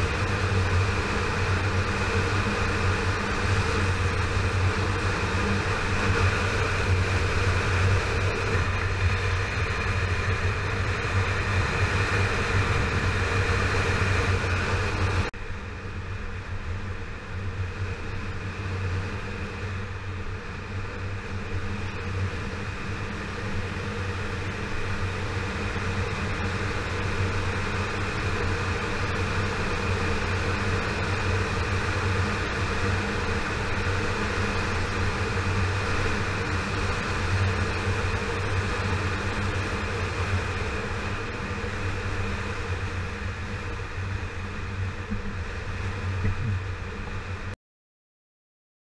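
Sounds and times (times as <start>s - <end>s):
road noise: 0.0s - 47.5s
wind noise: 16.1s - 47.5s
motorcycle engine cruising: 20.4s - 47.5s.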